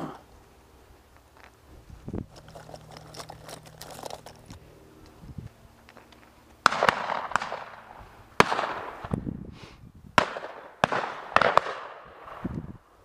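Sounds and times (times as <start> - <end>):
shotgun shots with echo: 6.6 - 9.1, 10.2 - 12.5.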